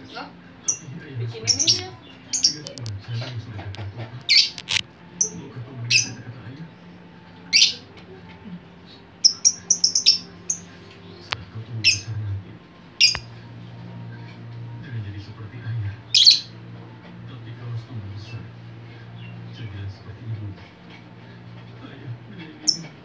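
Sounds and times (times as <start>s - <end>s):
lovebird chirping: 0.6s - 3.0s, 4.2s - 6.2s, 7.5s - 7.9s, 9.2s - 12.2s, 12.9s - 13.4s, 16.0s - 16.6s
steady low hum: 10.3s - 23.0s.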